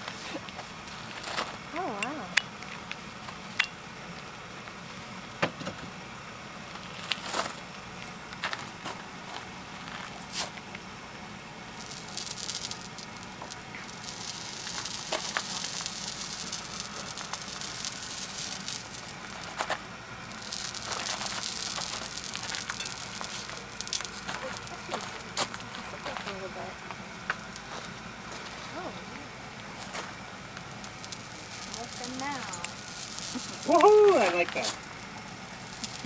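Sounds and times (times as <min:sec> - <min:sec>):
horse hair sizzling on hot pot: 0:01.8 - 0:02.6, 0:11.6 - 0:36.0.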